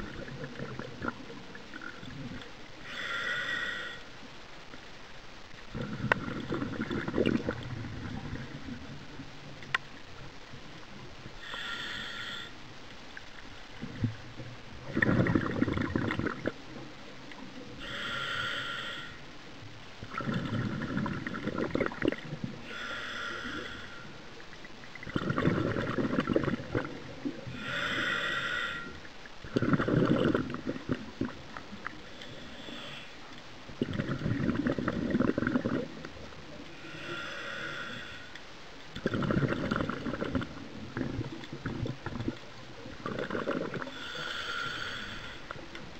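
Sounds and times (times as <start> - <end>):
regulator hissing inhalations: 2.8 - 4.1, 11.4 - 12.6, 17.8 - 19.2, 22.6 - 24.2, 27.5 - 29.0, 32.0 - 33.3, 36.7 - 38.4, 43.8 - 45.6
exhaust bubbles bubbling: 5.7 - 8.9, 14.8 - 16.6, 20.0 - 22.6, 24.9 - 27.5, 29.4 - 31.6, 33.8 - 36.1, 39.0 - 43.9.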